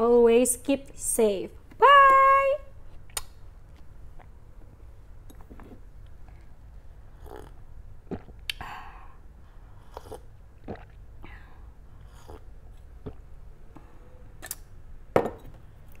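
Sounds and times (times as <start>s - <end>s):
soft swallowing gulps: 7.1s - 8.6s, 9.8s - 11.3s, 11.9s - 13.4s
coffee slurp: 7.2s - 8.4s, 9.8s - 11.0s, 12.0s - 13.3s.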